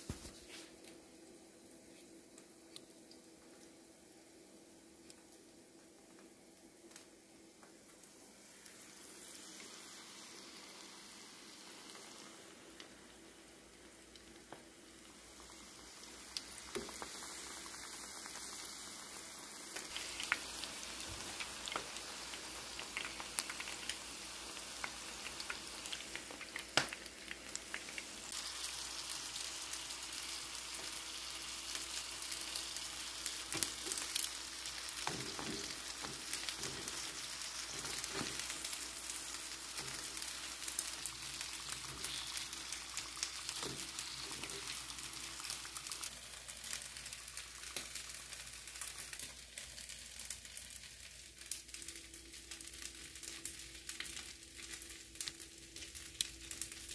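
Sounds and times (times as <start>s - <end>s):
chicken deep-frying in oil: 0.0s - 56.9s
oil popping and crackling: 12.7s - 56.9s.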